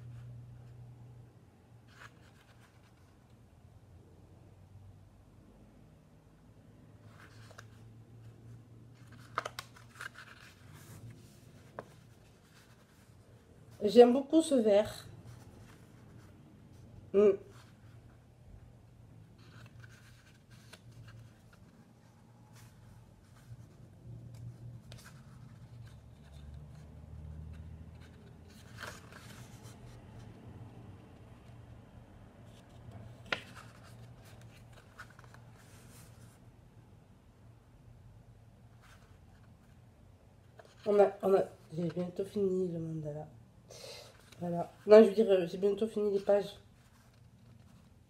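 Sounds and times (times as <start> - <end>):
paper pages rustling: 1.8 - 3.4, 7.0 - 16.9, 19.2 - 30.4, 32.4 - 36.4, 44.1 - 48.0.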